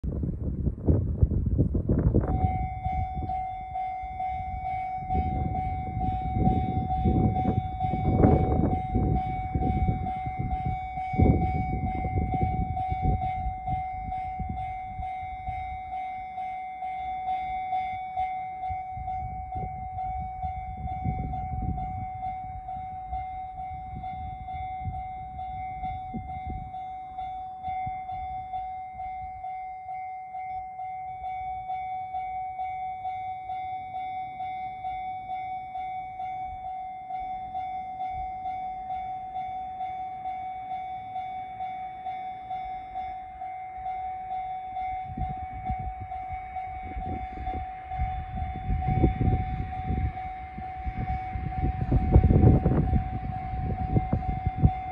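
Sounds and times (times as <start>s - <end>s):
low rumble: 0.0s - 16.0s
level-crossing alarm ringing: 2.0s - 54.9s.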